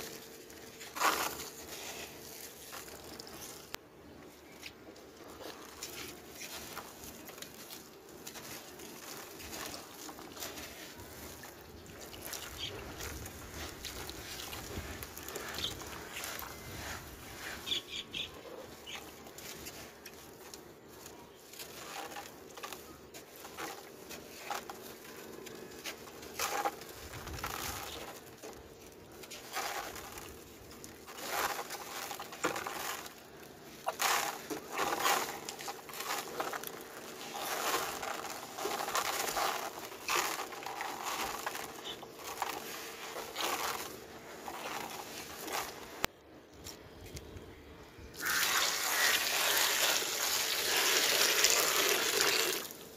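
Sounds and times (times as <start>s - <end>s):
hands crumbling damp sand: 5.3s - 46.1s.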